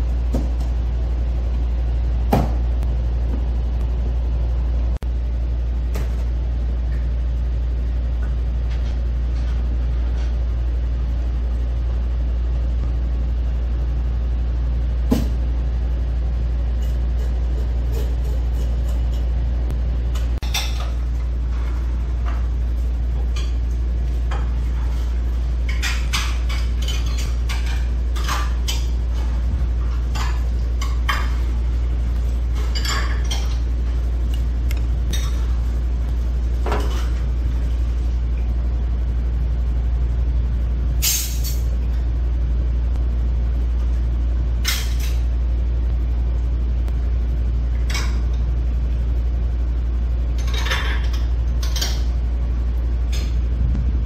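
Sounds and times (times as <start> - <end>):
low rumble: 52.7 - 54.0.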